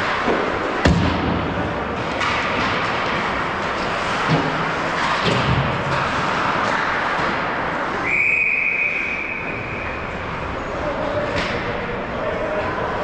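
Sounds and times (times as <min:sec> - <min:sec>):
stick and puck knocks: 0:00.0 - 0:03.4
rink crowd din: 0:00.0 - 0:13.0
skates scraping ice: 0:02.0 - 0:08.0
referee whistle blast: 0:08.0 - 0:09.9.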